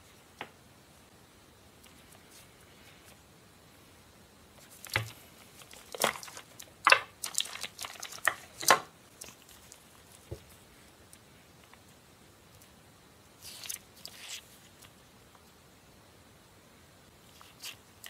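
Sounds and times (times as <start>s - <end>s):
paper crinkling: 4.6s - 10.6s.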